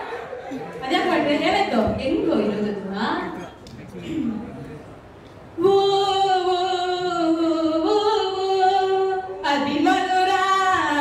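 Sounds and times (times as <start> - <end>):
woman singing: 5.6 - 11.0.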